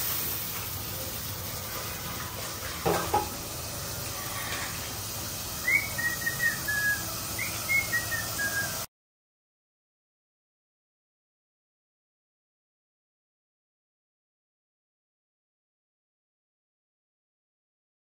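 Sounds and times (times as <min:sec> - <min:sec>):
tap running into a pot: 0:01.8 - 0:03.5
pot knocking against sink: 0:02.7 - 0:03.5.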